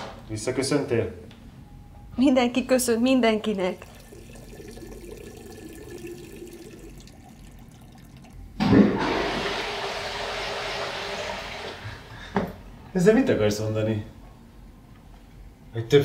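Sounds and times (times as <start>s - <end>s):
faint steady background noise: 0.0s - 8.8s, 10.7s - 16.0s
toilet flushing: 3.5s - 12.3s.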